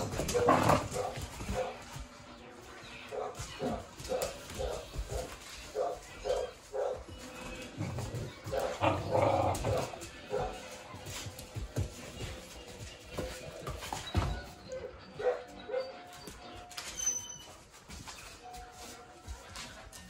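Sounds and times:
young dogs barking and growling: 0:00.0 - 0:01.8, 0:03.2 - 0:10.8.

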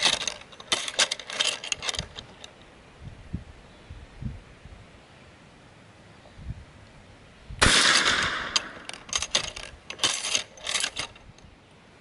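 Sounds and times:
lock and chain clinking: 0:00.0 - 0:02.5, 0:08.0 - 0:11.4
gunshot: 0:07.6 - 0:08.8.

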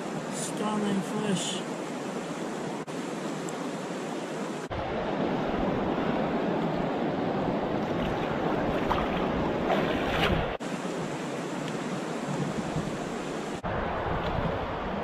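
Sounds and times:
river water rushing over stones: 0:00.0 - 0:15.0
water splashes: 0:07.5 - 0:15.0
wind buffeting microphone: 0:12.2 - 0:15.0.

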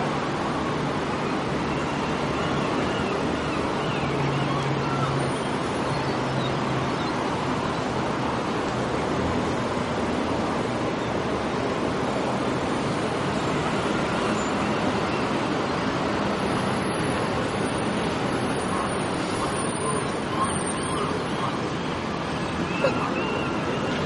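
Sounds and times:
distant city traffic hum: 0:00.0 - 0:24.0.

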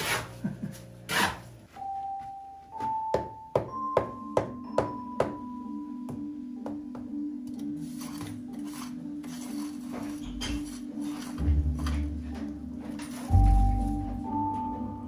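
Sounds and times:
background music with tapping beat: 0:01.8 - 0:15.0
trowel scraping wet mortar: 0:07.8 - 0:12.0.

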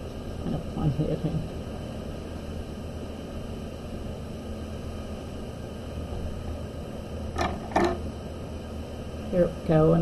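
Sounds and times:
low hum and hiss: 0:00.0 - 0:10.0.

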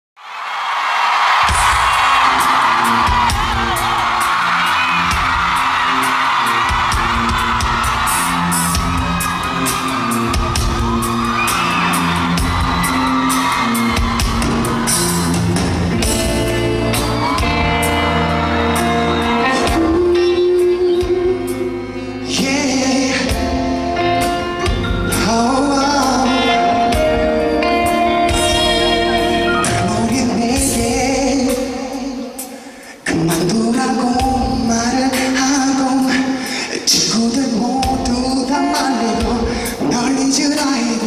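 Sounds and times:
fans screaming: 0:00.2 - 0:22.4
live pop music: 0:00.4 - 0:41.0
steady drum beat: 0:01.4 - 0:20.2.

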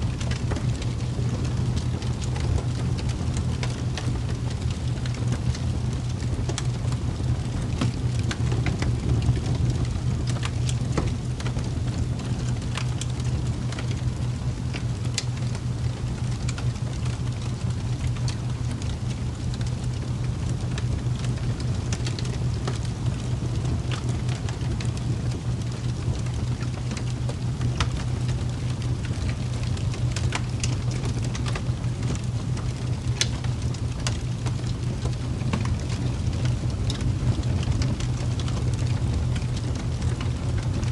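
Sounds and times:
light ticks of raindrops: 0:00.0 - 0:40.9
low rain rumble: 0:00.0 - 0:40.9.

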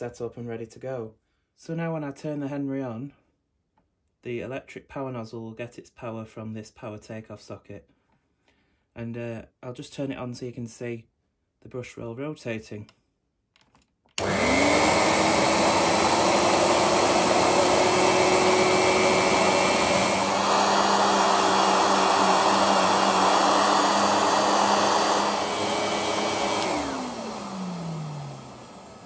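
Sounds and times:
vacuum cleaner running: 0:14.2 - 0:29.0
vacuum motor winding down: 0:14.2 - 0:29.0.

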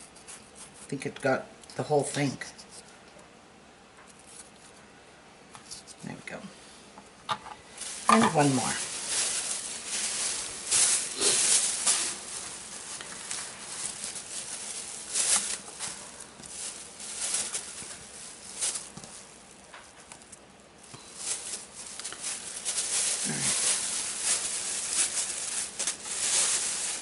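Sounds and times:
plastic bag crinkling: 0:07.6 - 0:27.0.

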